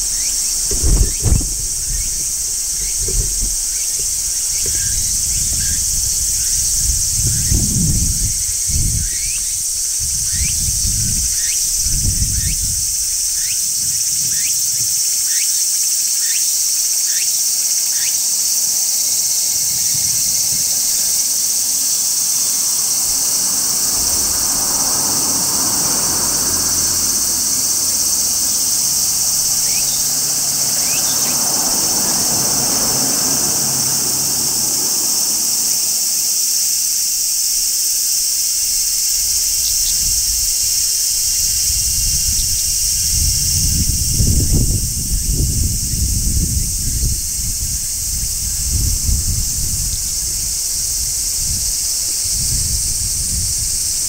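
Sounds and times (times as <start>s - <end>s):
low thumps: 0.0s - 5.9s
cicadas shrilling: 0.0s - 54.0s.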